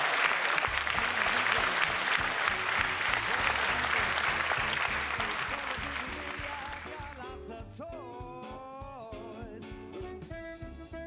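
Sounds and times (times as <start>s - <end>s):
crowd applause: 0.0s - 7.2s
music with plucked bass: 0.7s - 11.0s.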